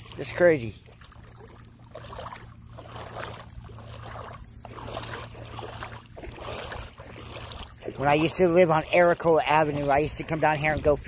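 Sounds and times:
steady low hum: 0.0s - 11.0s
water lapping at shoreline: 0.0s - 11.0s.

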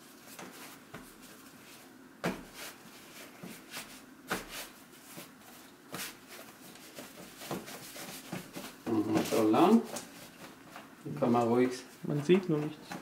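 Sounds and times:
hands rubbing dough: 0.0s - 13.0s
dull thumps of dough: 2.2s - 2.7s.

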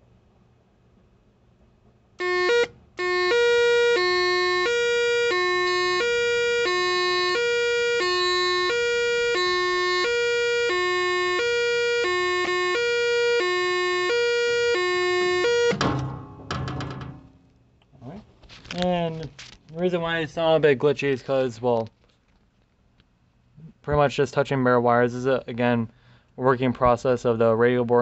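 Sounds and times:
electronic siren hi-lo tone: 2.2s - 15.8s.

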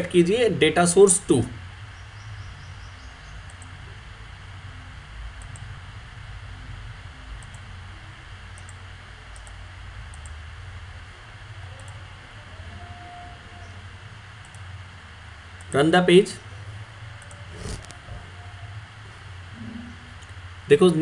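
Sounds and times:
recording hiss and hum: 0.0s - 21.0s
computer mouse clicking: 3.4s - 3.8s, 5.4s - 5.7s, 7.4s - 7.6s, 8.5s - 8.8s, 9.4s - 10.4s, 11.8s - 12.0s, 14.4s - 14.7s.

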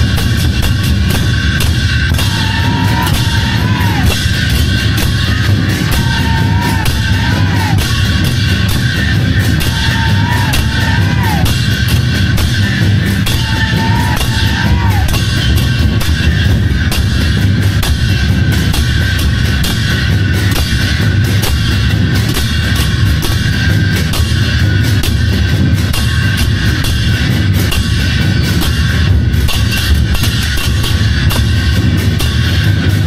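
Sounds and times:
big drums playing fast rhythm: 0.0s - 33.0s
drawn-out high call: 9.5s - 11.6s, 13.3s - 15.2s.

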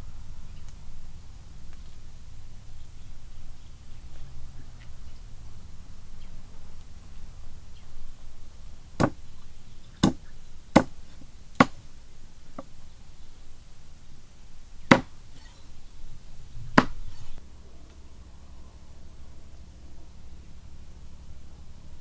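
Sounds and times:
cleaver chopping on wooden block: 9.0s - 9.2s, 10.0s - 11.8s, 14.9s - 15.1s, 16.7s - 17.3s.

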